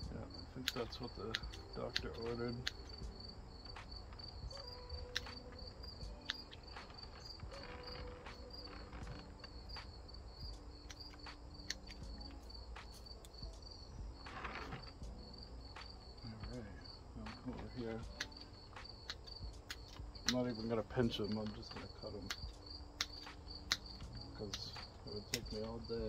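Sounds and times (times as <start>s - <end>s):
insects chirping: 0.0s - 26.0s
foliage rustling: 0.2s - 26.0s
pruning shears snipping: 0.6s - 3.0s, 17.3s - 25.9s.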